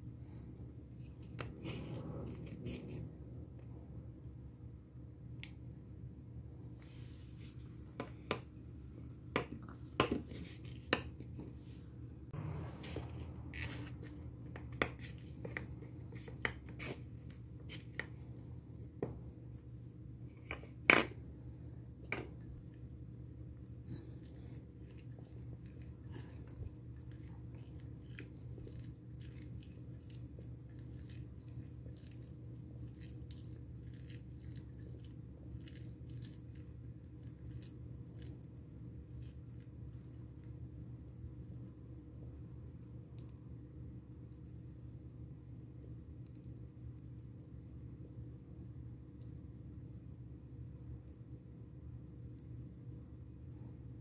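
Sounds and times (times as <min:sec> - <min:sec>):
steady low hum: 0:00.0 - 0:54.0
fingers mixing food: 0:06.8 - 0:11.8, 0:12.4 - 0:21.1, 0:21.7 - 0:42.0.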